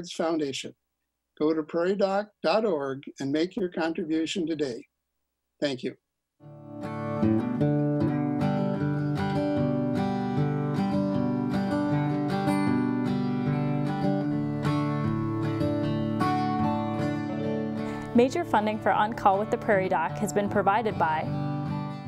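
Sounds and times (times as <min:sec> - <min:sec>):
acoustic guitar strumming: 0:06.4 - 0:22.0.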